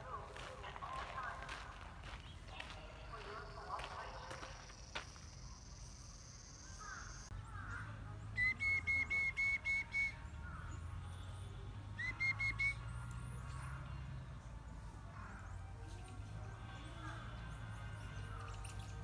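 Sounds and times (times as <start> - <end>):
bird whistling high notes: 8.4 - 10.2, 12.0 - 12.9.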